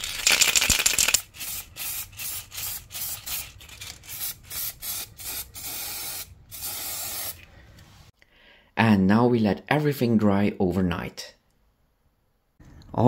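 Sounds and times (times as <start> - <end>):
aerosol spray can spraying: 0.2 - 7.4.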